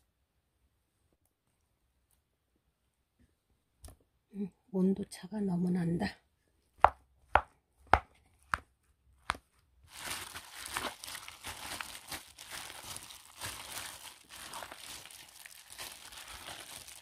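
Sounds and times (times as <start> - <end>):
plastic glove crinkling: 9.8 - 17.0
wet grains squelching: 10.0 - 17.0.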